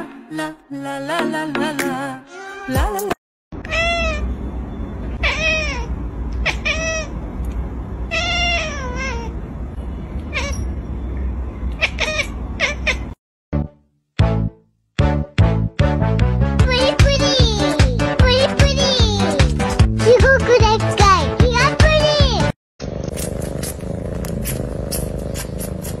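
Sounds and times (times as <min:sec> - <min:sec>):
cat meowing: 0:03.6 - 0:04.3, 0:05.2 - 0:07.1, 0:08.1 - 0:09.4, 0:10.3 - 0:10.7, 0:11.8 - 0:13.2.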